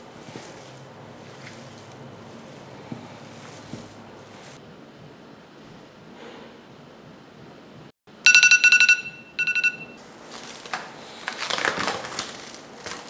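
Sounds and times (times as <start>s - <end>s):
rapid high timer beeping: 8.3s - 10.0s
plastic cling film crinkling: 10.2s - 13.0s.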